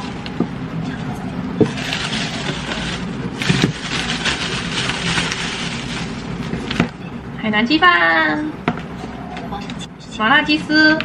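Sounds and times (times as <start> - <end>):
plastic bag crinkling: 1.6 - 6.5.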